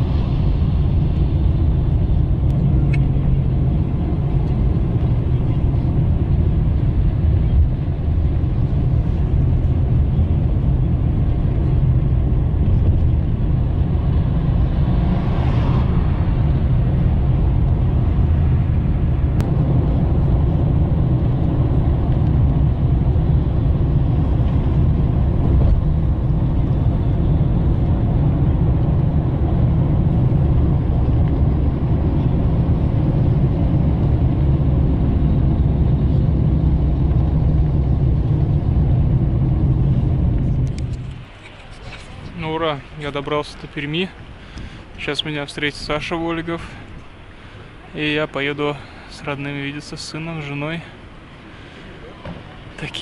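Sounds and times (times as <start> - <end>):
car engine and tyre rumble: 0.0 - 53.0.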